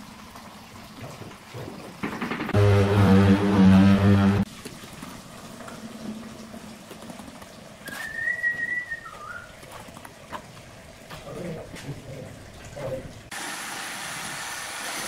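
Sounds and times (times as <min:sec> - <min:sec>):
high whistle: 0:07.9 - 0:09.5.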